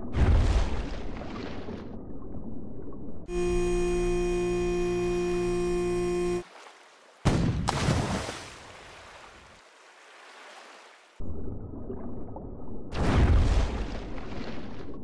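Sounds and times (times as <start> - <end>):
rumbling water and bubbles: 0.0 - 3.3, 11.2 - 15.0
loud water splash: 6.4 - 9.4.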